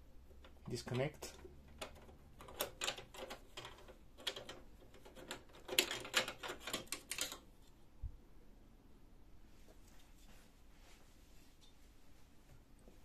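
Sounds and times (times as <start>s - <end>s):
plastic cover clicking and rattling: 1.2s - 7.4s.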